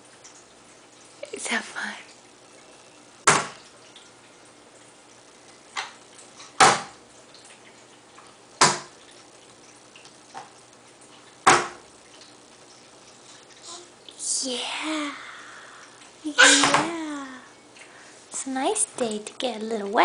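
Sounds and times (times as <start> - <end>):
hands slapping water on plastic tray: 5.8 - 7.0, 8.6 - 9.0.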